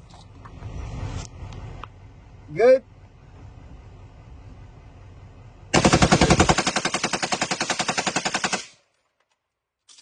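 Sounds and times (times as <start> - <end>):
machine gun firing burst: 5.7 - 8.8.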